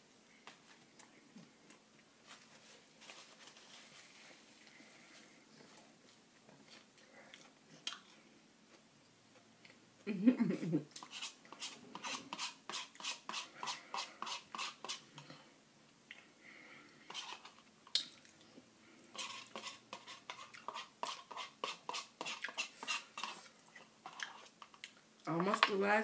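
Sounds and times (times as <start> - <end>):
spoon scraping paper cup: 11.0 - 15.0, 17.1 - 17.6, 19.1 - 24.6.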